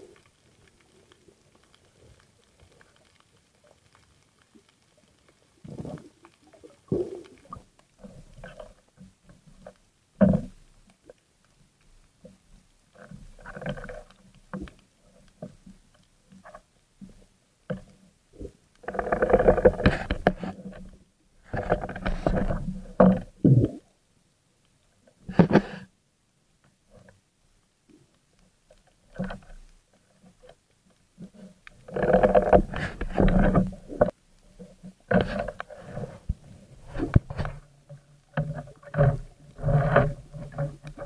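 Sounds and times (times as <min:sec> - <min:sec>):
underwater rubbing and scraping: 0:05.6 - 0:09.0, 0:12.9 - 0:14.8, 0:16.4 - 0:23.9, 0:25.2 - 0:25.9, 0:31.2 - 0:41.0.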